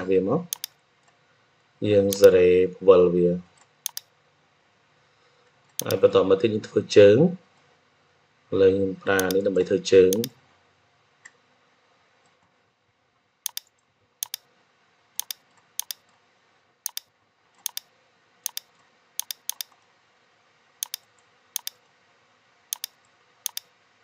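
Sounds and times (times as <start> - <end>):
computer mouse clicks: 0.5 - 1.2, 2.1 - 2.4, 3.6 - 4.1, 5.7 - 6.0, 9.2 - 9.4, 10.1 - 10.4, 13.4 - 14.5, 15.2 - 16.2, 16.9 - 19.8, 20.8 - 21.8, 22.7 - 23.7.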